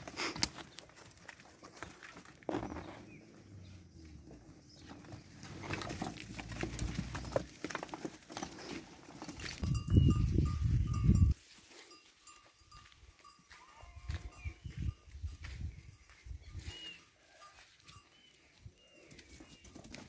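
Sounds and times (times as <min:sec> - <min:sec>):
sheep hooves clattering on concrete: 0:00.0 - 0:11.4, 0:19.0 - 0:20.0.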